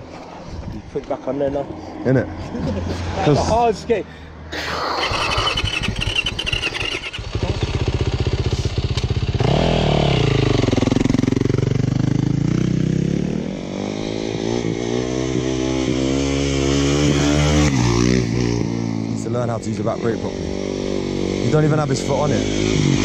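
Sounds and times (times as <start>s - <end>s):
dirt bike engine revving: 4.8s - 19.2s, 20.0s - 23.0s.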